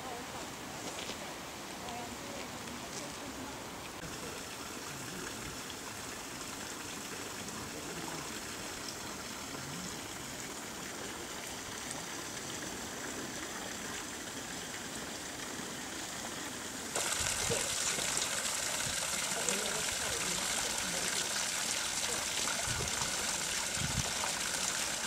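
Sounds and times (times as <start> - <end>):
running water hiss: 0.0 - 25.0.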